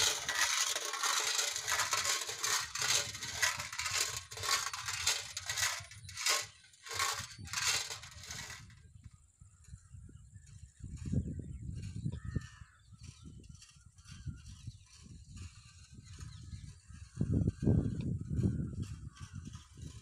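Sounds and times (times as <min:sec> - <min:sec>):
sheet-metal pinwheel rattling: 0:00.0 - 0:08.8.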